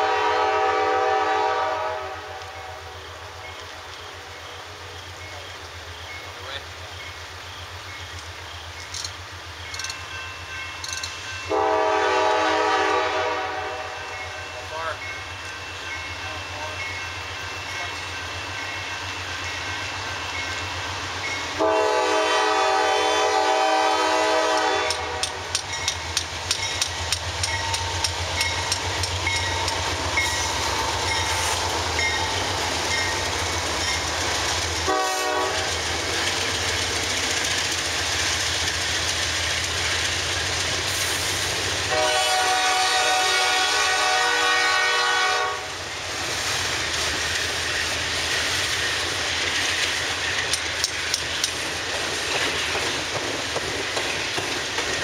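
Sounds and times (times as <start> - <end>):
diesel locomotive horn blasts: 0.0 - 3.1, 11.5 - 14.8, 21.6 - 25.6, 34.8 - 35.8, 41.9 - 45.8
low rumble of train: 0.0 - 55.0.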